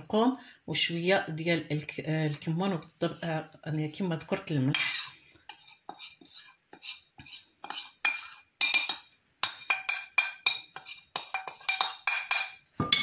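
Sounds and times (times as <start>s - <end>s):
metal spoon scraping a china plate: 4.7s - 13.0s.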